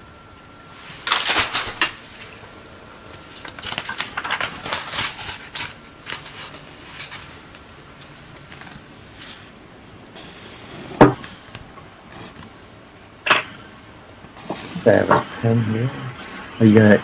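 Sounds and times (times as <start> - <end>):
clattering and rustling objects: 0.8 - 9.6, 10.2 - 12.6.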